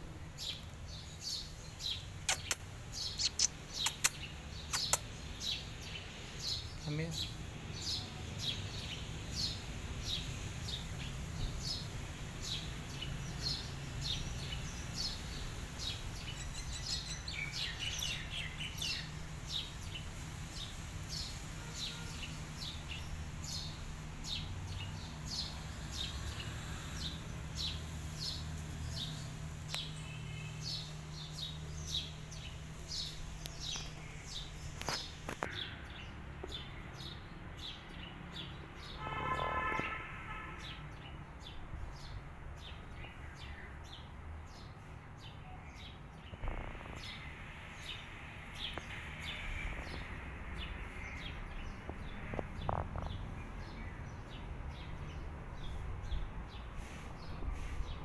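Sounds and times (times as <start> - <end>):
small bird chirping: 0.4 - 10.9, 12.5 - 35.8, 45.3 - 54.9.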